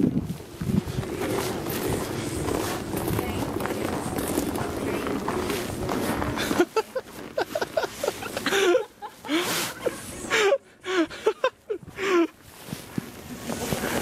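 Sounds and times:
woman laughing: 0:06.4 - 0:12.3.

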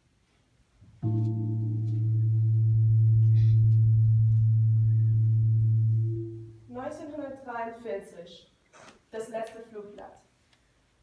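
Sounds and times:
deep ringing metal tone: 0:01.0 - 0:06.7.

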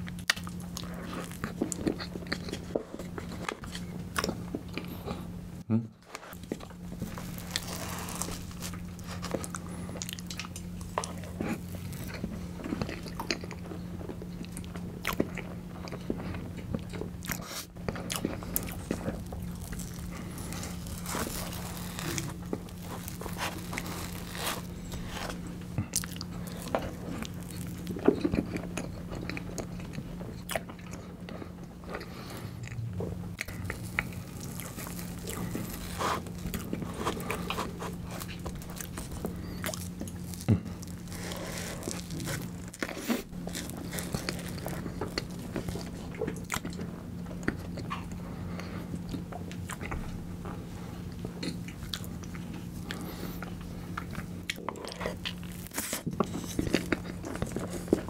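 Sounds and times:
steady low hum: 0:00.0 - 0:58.0
wet chewing and mouth smacks: 0:51.2 - 0:58.0.

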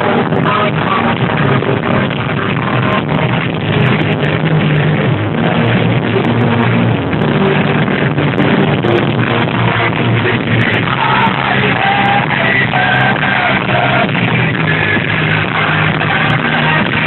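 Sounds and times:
loud live concert music: 0:00.0 - 0:17.0.

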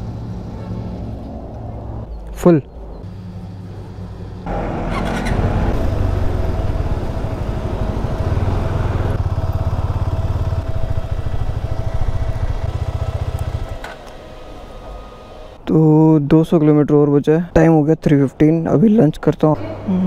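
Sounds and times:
motorcycle engine running: 0:03.1 - 0:15.6.

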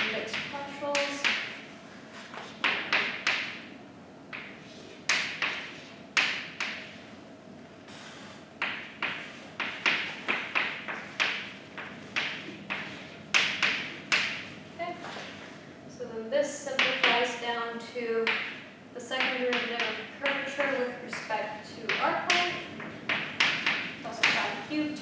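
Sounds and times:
chalk tapping on blackboard: 0:08.6 - 0:14.5, 0:19.2 - 0:21.3, 0:21.9 - 0:24.6.

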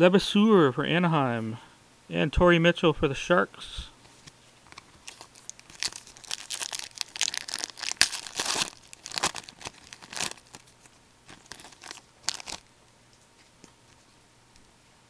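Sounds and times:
card pack wrapper rustling: 0:04.7 - 0:12.7.

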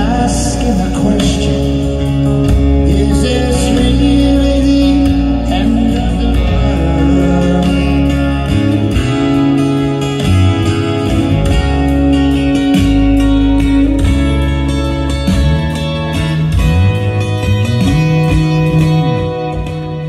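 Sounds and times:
electric bass guitar: 0:00.0 - 0:20.0
guitar: 0:00.0 - 0:20.0
live band playing: 0:00.0 - 0:20.0.

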